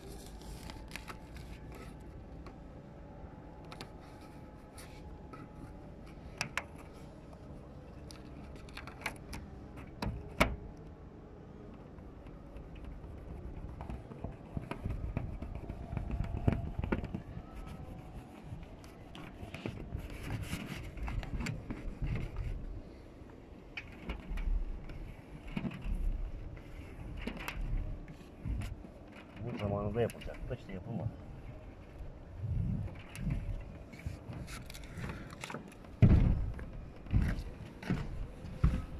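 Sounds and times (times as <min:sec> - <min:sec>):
tape clicks and light scraping: 0:00.0 - 0:02.6, 0:03.4 - 0:30.6, 0:31.4 - 0:38.9
low rubbing noise: 0:11.3 - 0:38.9.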